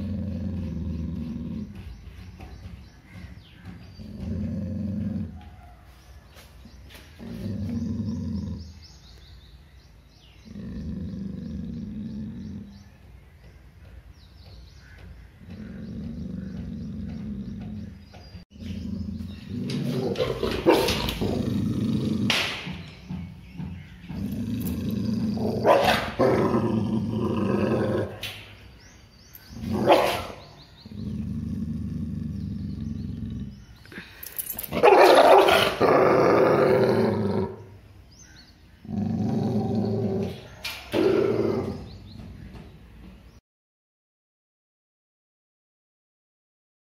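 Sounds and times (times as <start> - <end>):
dog growling: 0.0 - 2.0, 3.6 - 5.6, 7.2 - 9.0, 10.2 - 13.0, 15.5 - 22.4, 24.0 - 28.3, 29.6 - 37.8, 38.8 - 42.1
dog snarling barks: 19.8 - 22.5, 24.2 - 28.2, 29.6 - 30.5, 34.7 - 37.6.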